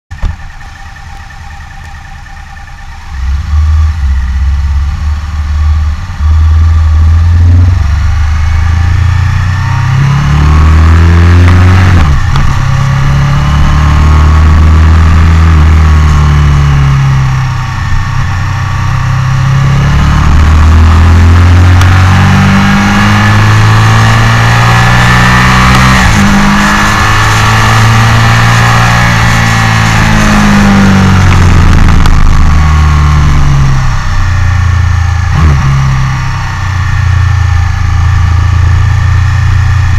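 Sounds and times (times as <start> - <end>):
motorcycle engine accelerating: 0.1 - 39.9.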